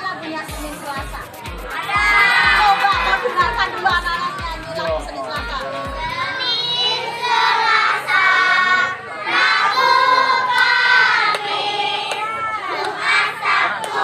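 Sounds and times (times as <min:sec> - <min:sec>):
children singing in unison: 0:06.1 - 0:14.0.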